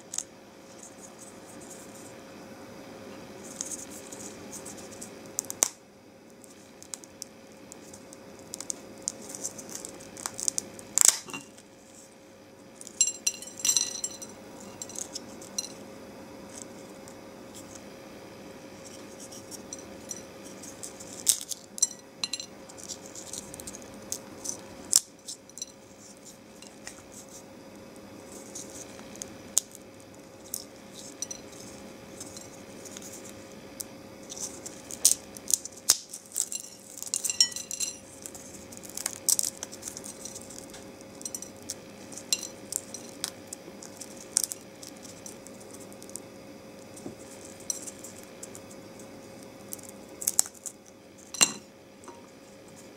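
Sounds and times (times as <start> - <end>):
dry food crackling and crunching: 3.4 - 12.1, 18.7 - 51.5
crumbs ticking onto plate: 6.4 - 11.3.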